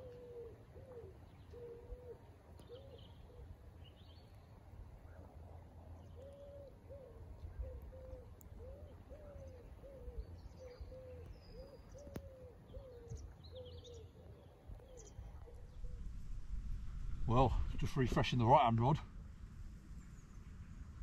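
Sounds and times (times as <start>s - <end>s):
bird hooting: 0.0s - 3.5s, 6.2s - 16.4s.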